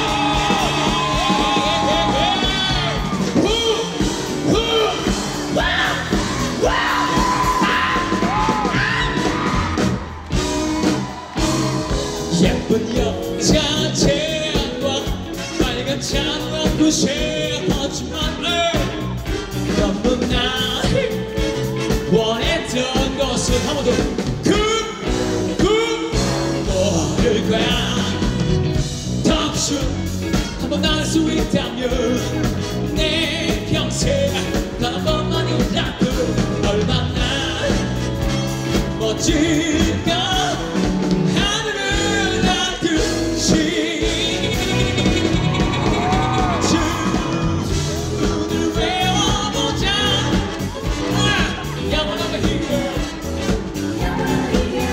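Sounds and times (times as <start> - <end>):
live rock band playing: 0.0 - 54.9
person singing: 10.6 - 28.5, 29.2 - 54.9.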